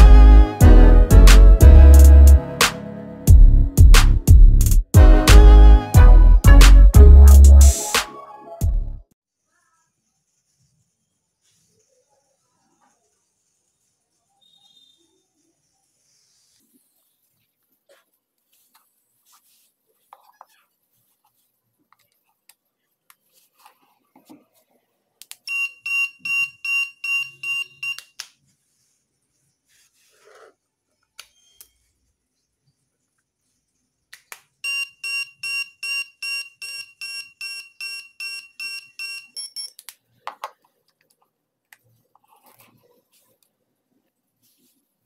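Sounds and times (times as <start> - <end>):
electronic buzzer beeping: 34.6 - 39.8.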